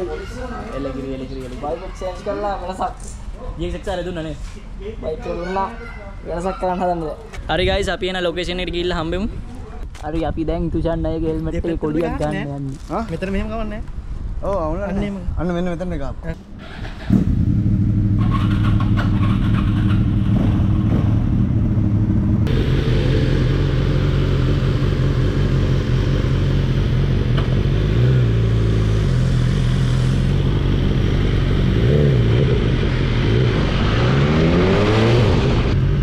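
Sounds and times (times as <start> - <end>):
motorcycle engines idling and revving: 0.0 - 15.1, 16.3 - 36.0.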